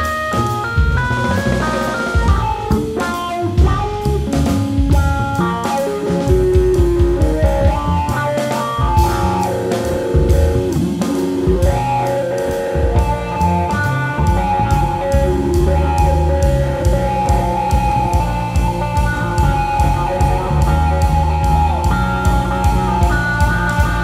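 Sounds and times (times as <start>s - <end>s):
drum kit with cymbals: 0.0s - 24.0s
keyboards: 0.0s - 24.0s
plucked upright bass: 12.7s - 24.0s.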